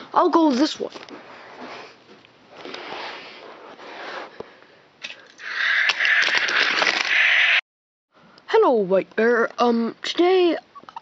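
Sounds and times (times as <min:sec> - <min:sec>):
scattered clicks: 0:05.0 - 0:07.4.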